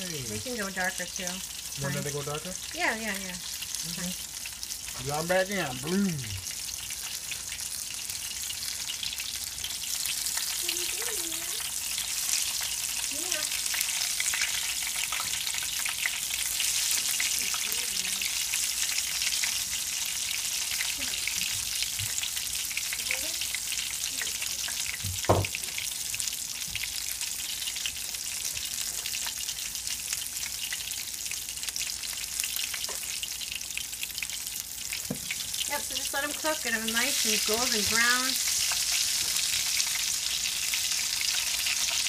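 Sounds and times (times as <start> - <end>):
frying sizzle in oil: 0.0 - 42.0
sharp knock: 25.3 - 25.5.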